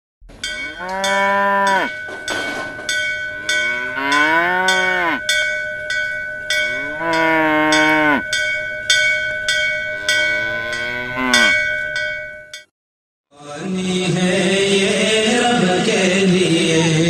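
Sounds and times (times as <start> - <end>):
bell struck in steady beat: 0.4 - 12.7
cattle mooing: 0.6 - 2.0, 3.3 - 5.2, 6.7 - 8.2, 10.0 - 11.6.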